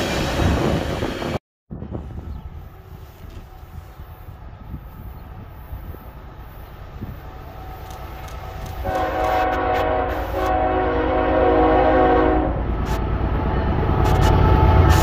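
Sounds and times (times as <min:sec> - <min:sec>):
locomotive chime horn blasts: 0:08.8 - 0:12.6.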